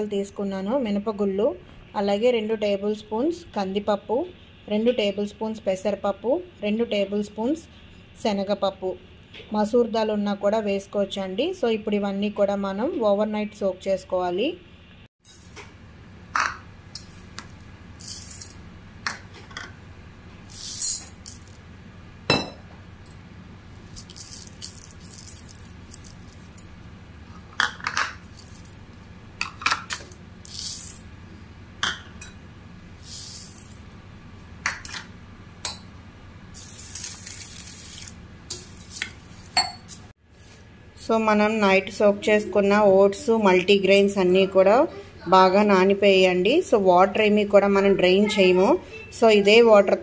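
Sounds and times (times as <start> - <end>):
faint hum: 0.0 - 38.6
lentils rattling into metal bowl: 18.0 - 18.6, 20.5 - 21.6, 23.8 - 26.6, 28.3 - 28.8, 30.4 - 31.1, 33.0 - 33.9.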